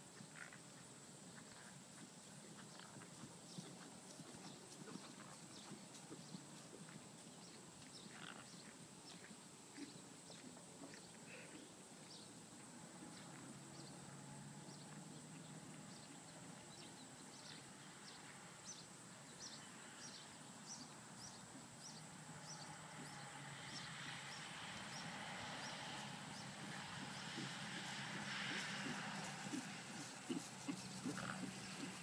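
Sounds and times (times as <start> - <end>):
horse trotting on grass: 0.0 - 11.0, 21.5 - 32.0
steady outdoor hiss: 0.0 - 32.0.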